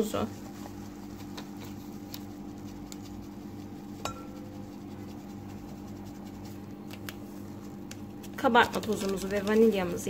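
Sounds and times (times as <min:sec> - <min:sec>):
steady low hum: 0:00.0 - 0:10.0
sieve clinking against glass bowl: 0:04.0 - 0:04.4.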